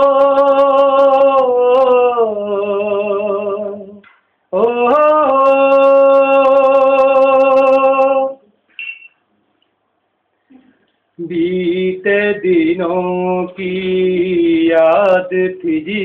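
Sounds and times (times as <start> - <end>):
man singing unaccompanied: 0.0 - 8.5, 11.2 - 16.0.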